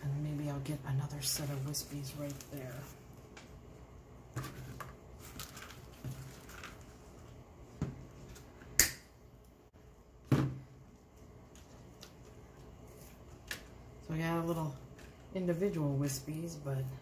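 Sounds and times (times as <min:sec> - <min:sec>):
artificial greenery rustling: 0:00.0 - 0:03.2, 0:04.4 - 0:07.4.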